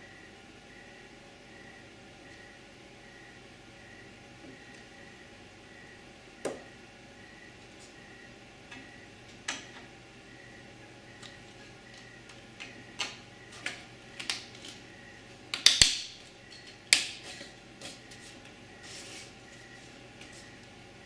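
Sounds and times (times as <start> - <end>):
faint steady hum: 0.0 - 21.0
wooden pieces clicking together: 15.5 - 16.2
wooden pieces clicking and knocking: 15.5 - 17.2.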